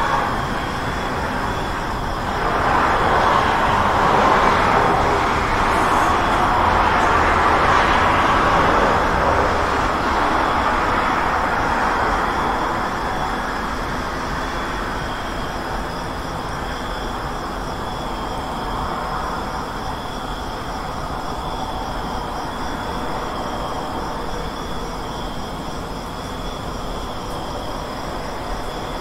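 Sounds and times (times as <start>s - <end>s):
road traffic passing: 0.0s - 20.0s.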